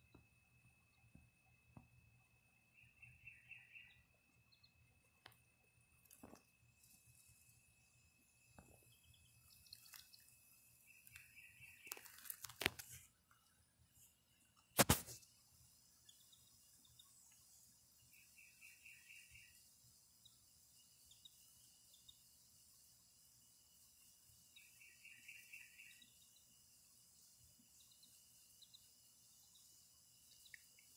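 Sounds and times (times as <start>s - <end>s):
rapid chirping trills: 6.8s - 12.8s, 15.2s - 30.9s.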